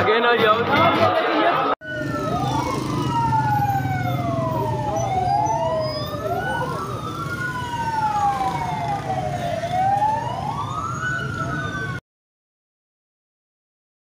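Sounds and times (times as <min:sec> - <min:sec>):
sirens wailing: 0:01.8 - 0:12.0.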